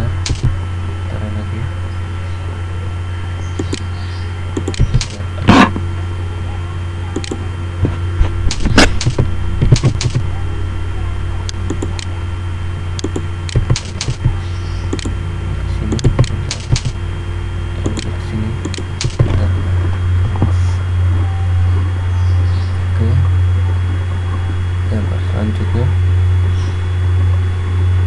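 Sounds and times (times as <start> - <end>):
computer keyboard typing: 0.0 - 0.6, 3.6 - 3.9, 4.6 - 5.2, 7.1 - 7.4, 8.5 - 10.3, 11.5 - 12.1, 13.0 - 15.2, 15.8 - 17.0, 17.8 - 19.4
steady low hum: 0.0 - 28.0.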